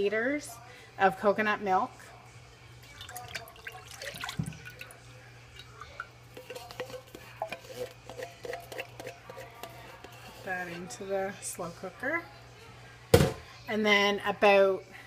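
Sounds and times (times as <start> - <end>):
coconut milk pouring and dripping: 2.8 - 9.2
spatula scraping a can: 6.3 - 11.0.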